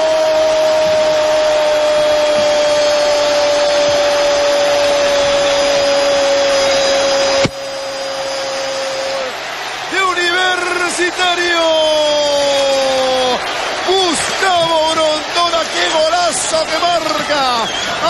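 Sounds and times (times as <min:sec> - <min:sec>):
stadium crowd cheering: 0:00.0 - 0:18.0
commentator's long goal shout: 0:09.2 - 0:18.0.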